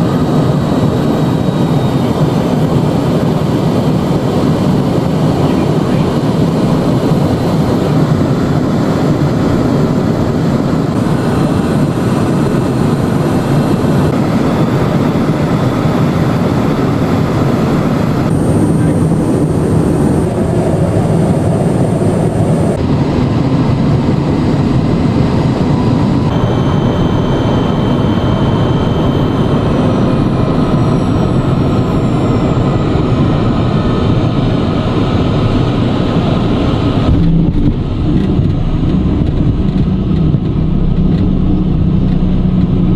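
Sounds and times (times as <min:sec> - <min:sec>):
jet cabin airflow and engine noise: 0:00.0 - 0:42.9.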